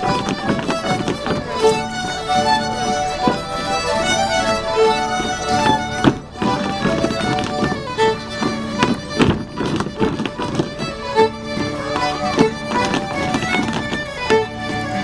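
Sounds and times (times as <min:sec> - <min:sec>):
sharp knocks: 0:00.0 - 0:02.2, 0:05.1 - 0:14.9
fiddles playing dance tune: 0:00.0 - 0:15.0.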